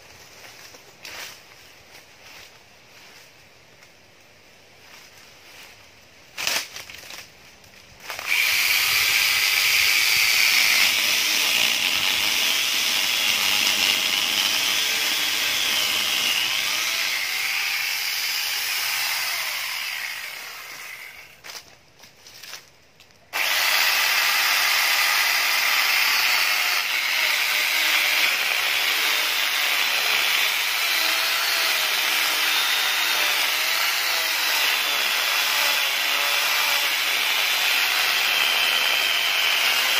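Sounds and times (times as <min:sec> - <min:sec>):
angle grinder cutting wood: 0:08.1 - 0:21.4, 0:23.4 - 0:39.9.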